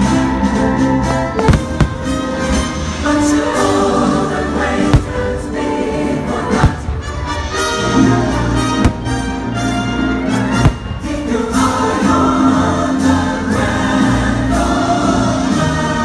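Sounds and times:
choir singing held notes: 1.4 - 9.6, 10.2 - 16.0
firework bang: 10.6 - 11.1.

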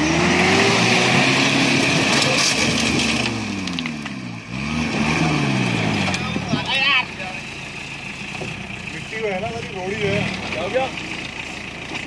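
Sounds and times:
jeep engine revving hard: 0.0 - 7.4, 9.6 - 11.0
gravel crunching under tyres: 0.5 - 12.0.

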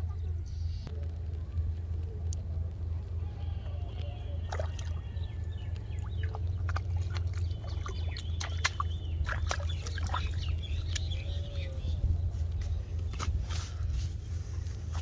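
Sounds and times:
birds chirping: 0.0 - 15.0
steady low hum: 0.0 - 15.0
fish flapping on wet grass: 3.7 - 15.0.

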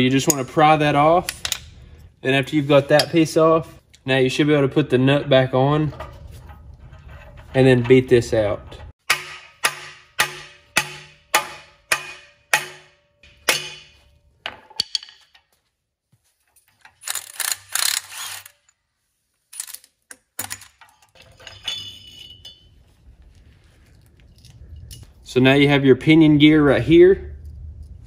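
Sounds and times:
hammer striking metal: 9.0 - 15.2
metal parts clattering: 16.4 - 18.7, 19.5 - 22.9.

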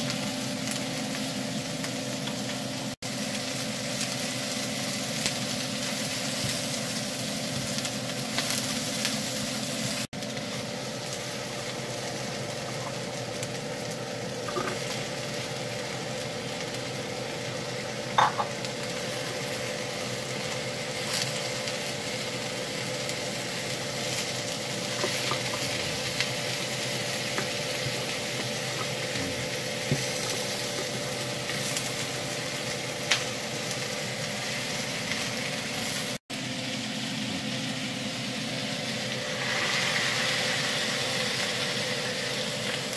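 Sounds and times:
vegetables sizzling in frying pan: 0.0 - 42.9.

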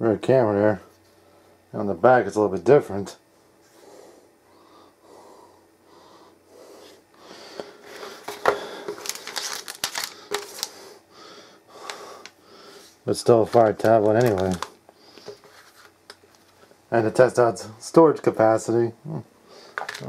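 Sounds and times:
packaging rustling: 7.8 - 10.9, 13.4 - 16.6, 19.7 - 20.0.

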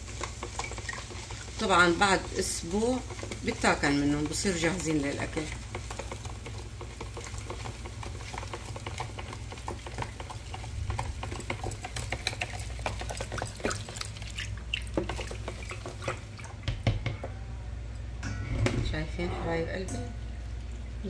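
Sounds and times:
steady low hum: 15.6 - 21.0.

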